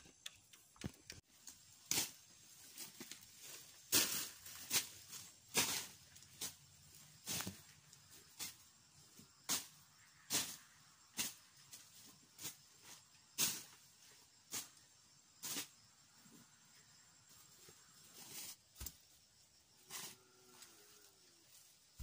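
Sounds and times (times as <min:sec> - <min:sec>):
machete cutting through weeds: 0:03.9 - 0:06.5.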